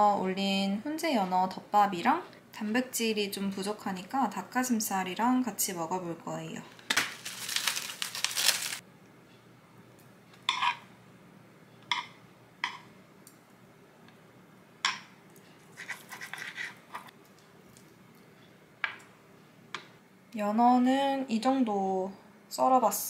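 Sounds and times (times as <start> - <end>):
faint steady hum: 0.0 - 23.0
knife cutting on cutting board: 15.8 - 17.1.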